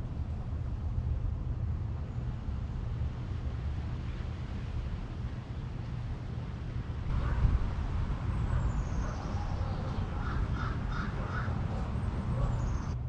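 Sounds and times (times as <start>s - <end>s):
steady low rumble: 0.0s - 13.0s
birds calling: 7.1s - 13.0s.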